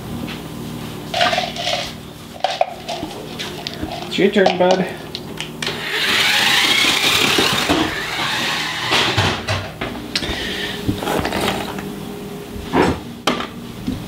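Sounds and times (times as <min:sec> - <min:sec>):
toy car motor whirring: 0:05.8 - 0:09.0.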